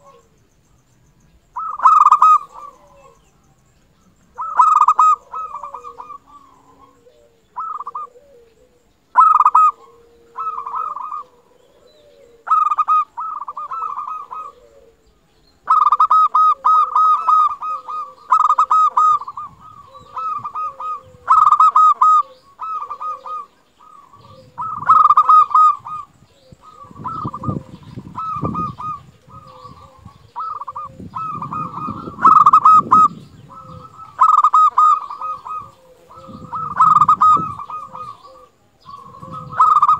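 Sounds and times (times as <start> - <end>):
dove cooing: 0.0 - 0.4, 1.2 - 39.9.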